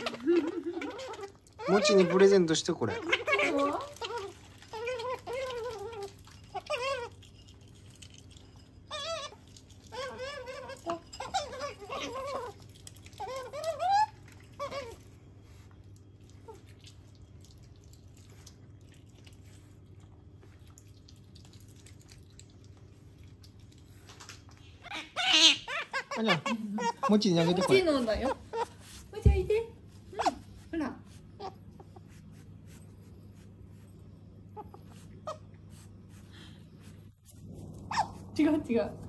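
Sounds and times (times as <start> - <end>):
otter squeaking: 0.0 - 7.1, 24.8 - 32.0.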